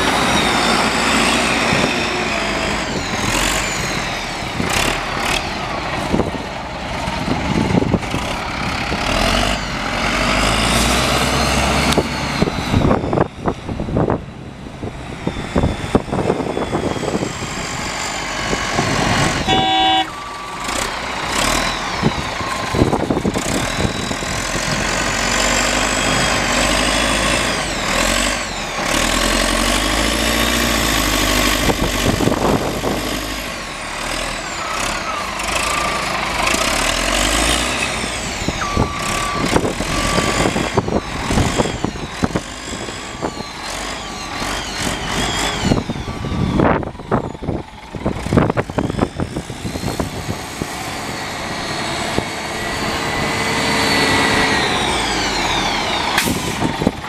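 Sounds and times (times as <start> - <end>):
diesel engine revving: 0.0 - 57.0
short beep: 19.4 - 20.5.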